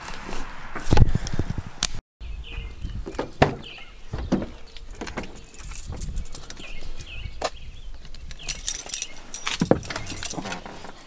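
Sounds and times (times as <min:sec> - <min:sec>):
car keys jangling: 0:04.9 - 0:06.8, 0:08.3 - 0:11.0.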